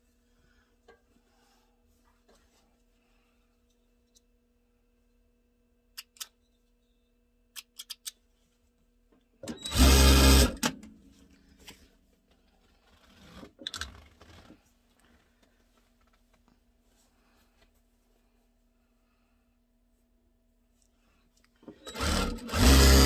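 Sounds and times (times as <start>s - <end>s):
sewing machine stitching: 9.5s - 10.6s, 21.8s - 23.0s.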